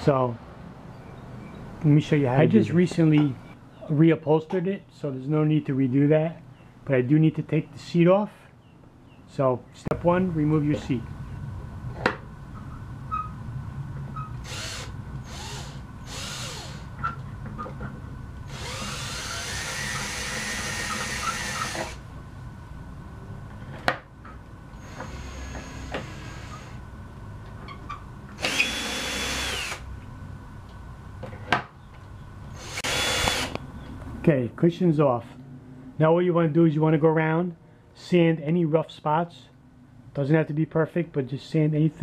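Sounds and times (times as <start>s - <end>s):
cordless drill whining: 14.4s - 16.9s, 18.5s - 22.0s, 24.8s - 26.8s, 28.4s - 29.8s, 32.6s - 33.6s.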